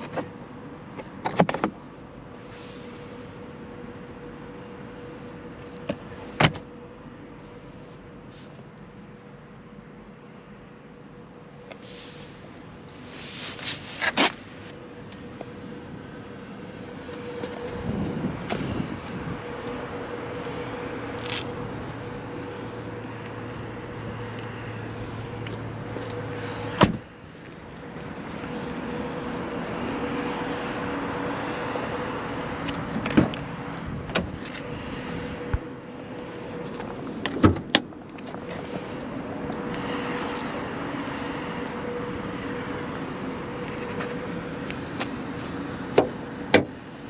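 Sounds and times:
car door slamming shut: 0:26.8 - 0:27.0.

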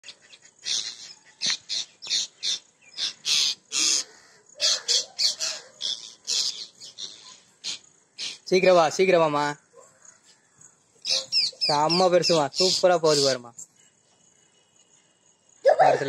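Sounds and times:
parrots screeching: 0:00.6 - 0:08.4.

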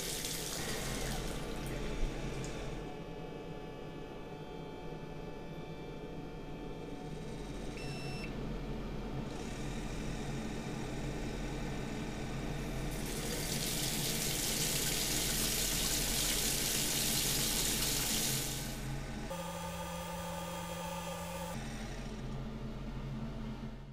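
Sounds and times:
faucet water running into sink: 0:00.0 - 0:01.7, 0:13.0 - 0:18.8.

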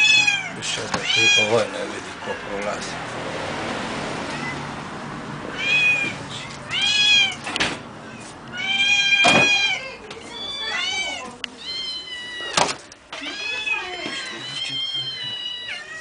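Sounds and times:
cat meowing: 0:00.0 - 0:01.9, 0:04.3 - 0:04.7, 0:05.5 - 0:16.0.

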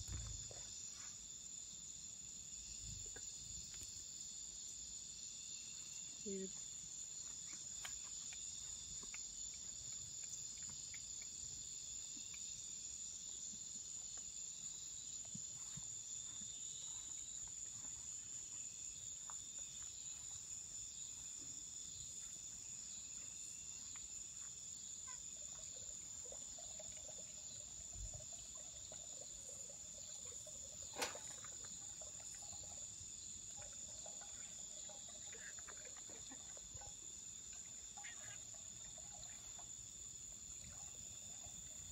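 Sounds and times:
crickets trilling: 0:00.0 - 0:41.9.

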